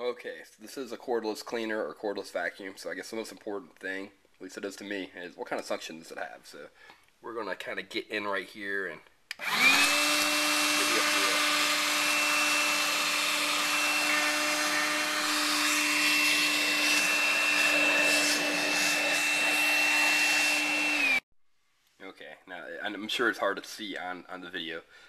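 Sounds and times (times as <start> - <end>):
cordless vacuum motor whining: 9.4 - 21.2.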